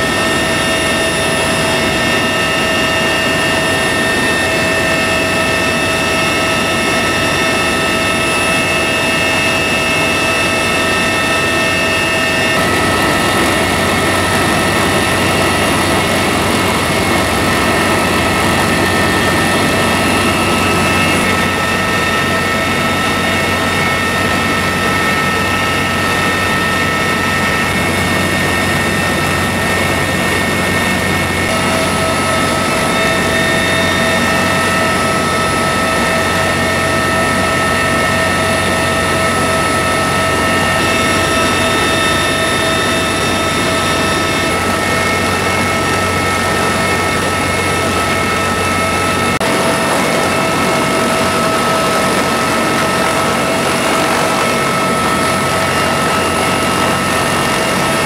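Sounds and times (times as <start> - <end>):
helicopter cabin noise: 0.0 - 58.0
high whining tones: 0.0 - 58.0.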